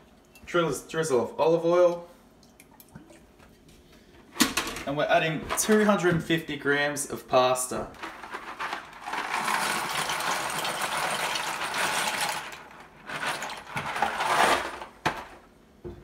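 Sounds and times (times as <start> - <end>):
dry pasta rattling into saucepan: 8.0 - 15.4.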